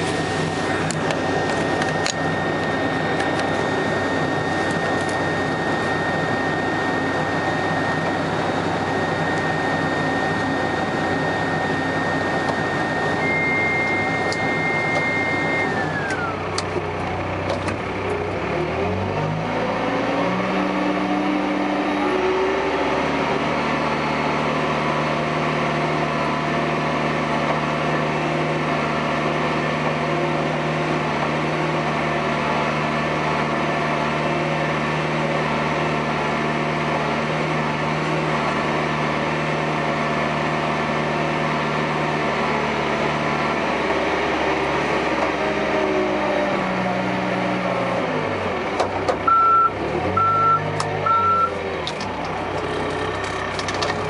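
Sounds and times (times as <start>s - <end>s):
high whine: 0.0s - 18.9s
diesel engine running: 0.0s - 54.0s.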